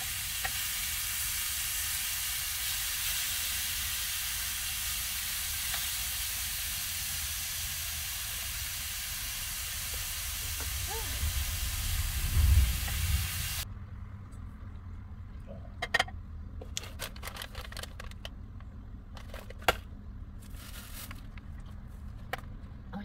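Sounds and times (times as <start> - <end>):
food sizzling in frying pan: 0.0 - 13.6
packets and containers handled: 16.6 - 22.7.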